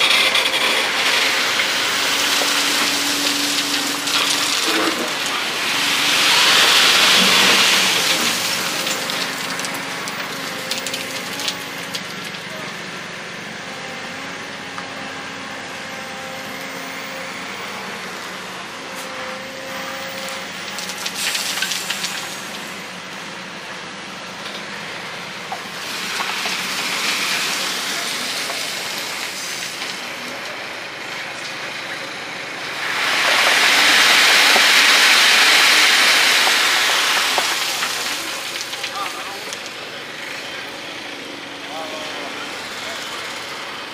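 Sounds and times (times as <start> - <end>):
loud rushing hiss: 0.0 - 9.7, 32.6 - 38.7
excavator engine hum: 0.0 - 43.9.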